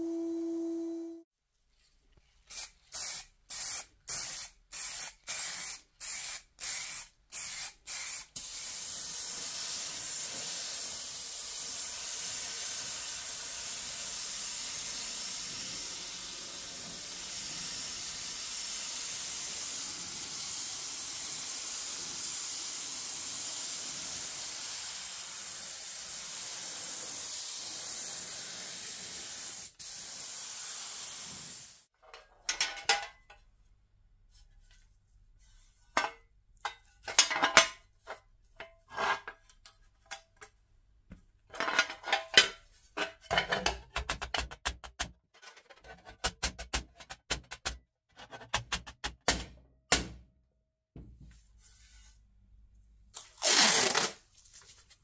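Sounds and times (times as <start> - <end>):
spray paint hissing: 2.5 - 31.9.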